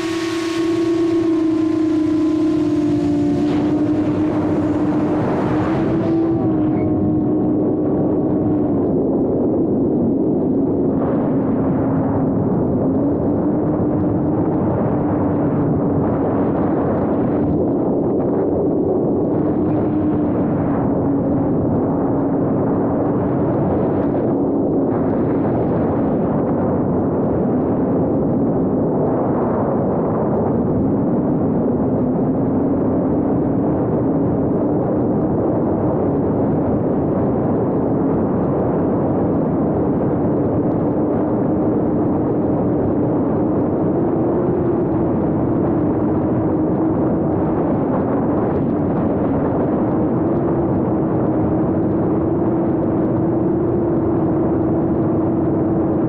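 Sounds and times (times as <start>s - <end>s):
drone propellers buzzing: 0.0s - 11.8s
steady wavering hum: 0.0s - 16.3s.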